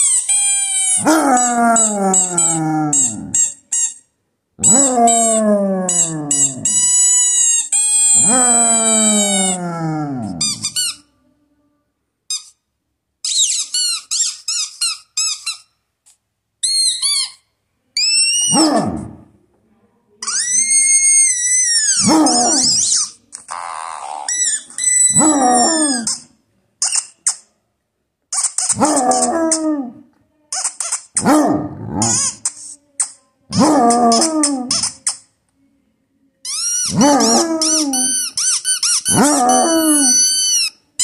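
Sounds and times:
dog howling and whining: 0.8 - 3.6, 4.6 - 10.9, 18.0 - 19.2, 20.4 - 22.9, 24.8 - 26.2, 28.8 - 30.0, 33.5 - 34.9, 36.9 - 38.4, 39.1 - 40.6.

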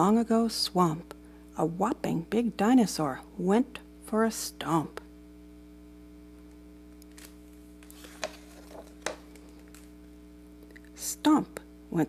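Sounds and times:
low steady hum: 0.0 - 12.0
paper page turning: 7.0 - 10.0.

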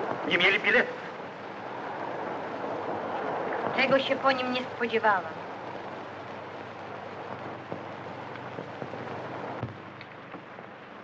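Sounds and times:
film soundtrack hiss and crackle: 0.0 - 11.0.

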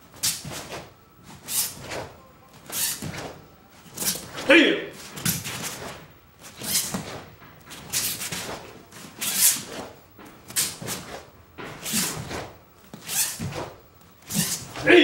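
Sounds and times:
cloth snapping and swishing: 5.0 - 14.9.

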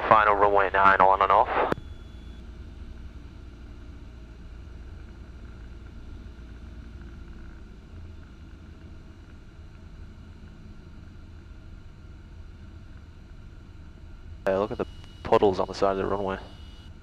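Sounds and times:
faint airplane engine drone: 0.0 - 17.0.

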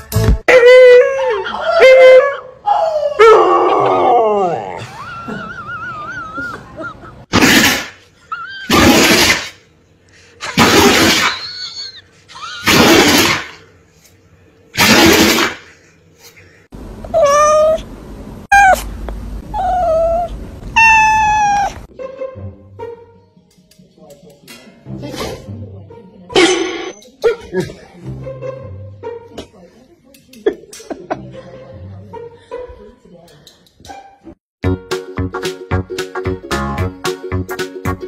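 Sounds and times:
husky whining: 19.5 - 21.9.

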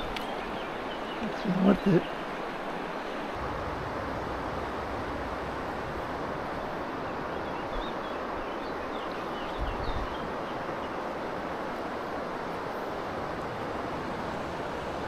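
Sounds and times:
river water rushing: 0.0 - 15.0
wind rumble on microphone: 3.4 - 8.8, 9.4 - 10.5.

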